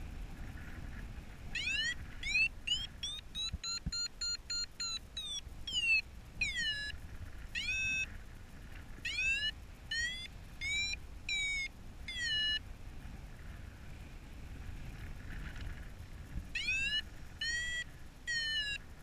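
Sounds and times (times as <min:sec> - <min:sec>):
wind rumble on microphone: 0:00.0 - 0:19.0
variometer beeping: 0:01.5 - 0:08.2, 0:09.0 - 0:12.7, 0:16.5 - 0:19.0.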